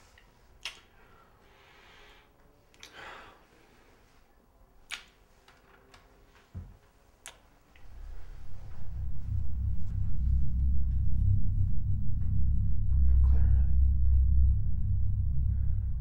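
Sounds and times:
lip smacks of kissing: 0:00.6 - 0:00.9, 0:02.7 - 0:03.0, 0:04.9 - 0:05.2, 0:07.2 - 0:07.4
breath: 0:00.9 - 0:04.3
soft low bump of movement: 0:07.8 - 0:16.0.

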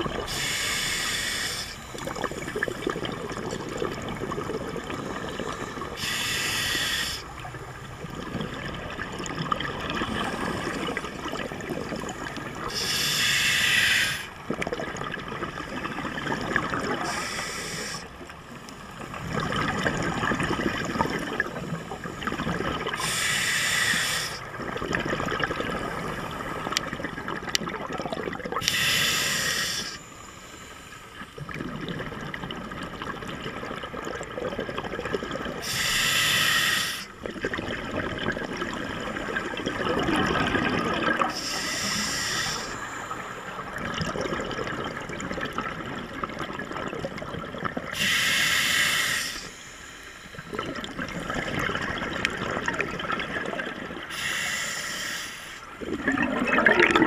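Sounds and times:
regulator hissing inhalations: 0:00.3 - 0:01.9, 0:05.9 - 0:07.3, 0:12.7 - 0:14.3, 0:17.0 - 0:18.1, 0:23.0 - 0:24.5, 0:28.6 - 0:31.2, 0:35.6 - 0:37.2, 0:41.3 - 0:43.4, 0:48.0 - 0:50.5, 0:54.1 - 0:55.7
bubbling exhalation: 0:37.2 - 0:42.7, 0:55.8 - 0:57.0.

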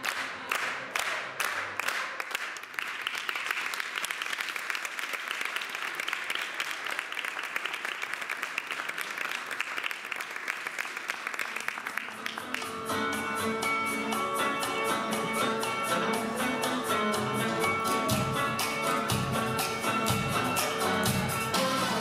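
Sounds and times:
crowd clapping in time: 0:00.0 - 0:12.9
crowd applauding: 0:00.0 - 0:13.0
song music: 0:12.1 - 0:22.0.

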